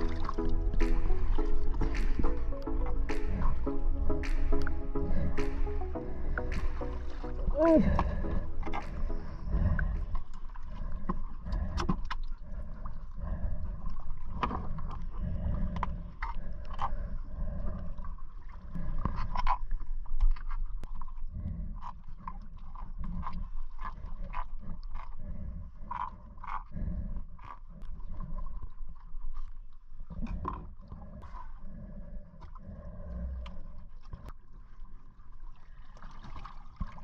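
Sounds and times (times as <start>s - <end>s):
steady low rumble: 0.0s - 11.8s
clicks and scrapes of handling fish: 13.8s - 31.0s.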